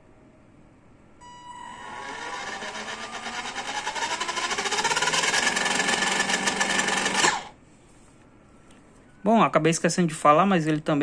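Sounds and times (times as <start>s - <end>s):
toy car motor whining: 1.2s - 7.6s.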